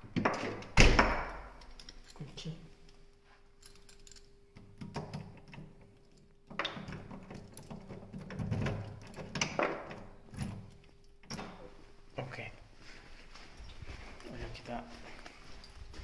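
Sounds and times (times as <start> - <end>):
keys jingling: 1.6 - 4.5, 15.2 - 16.0.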